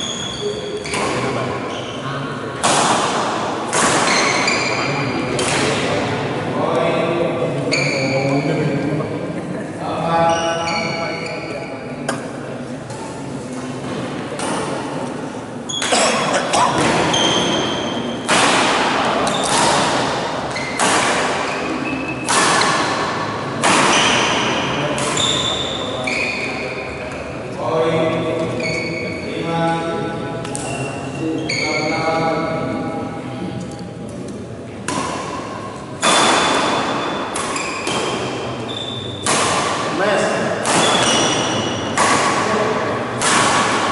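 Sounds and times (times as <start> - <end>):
rackets hitting shuttlecock: 2.6 - 5.9, 13.8 - 15.0, 16.7 - 26.2, 30.4 - 30.8, 34.8 - 43.9.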